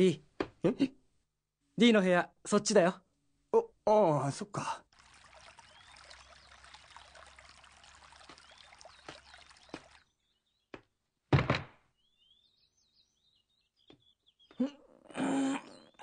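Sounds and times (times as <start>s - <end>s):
high bird chirps: 5.6s - 7.2s, 8.2s - 10.8s, 12.0s - 14.7s
dull thump: 11.3s - 11.8s.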